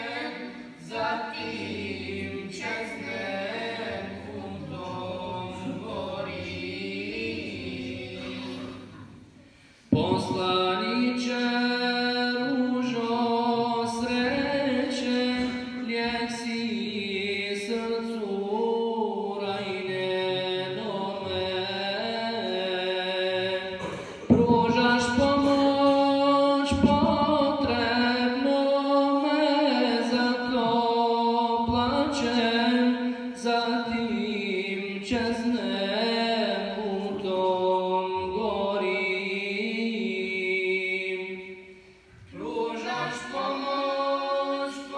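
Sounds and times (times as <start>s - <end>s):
man chanting unaccompanied: 9.9s - 41.5s.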